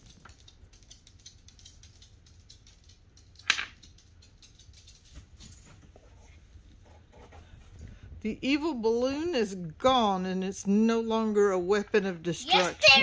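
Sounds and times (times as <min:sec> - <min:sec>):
plastic toys clicking on wood: 0:00.0 - 0:05.0.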